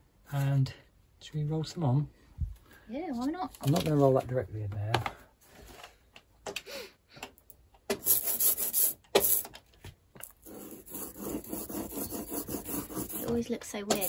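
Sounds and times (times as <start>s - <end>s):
roller rasping on lino block: 10.3s - 14.0s
rubber roller rolling sticky ink: 10.3s - 14.0s.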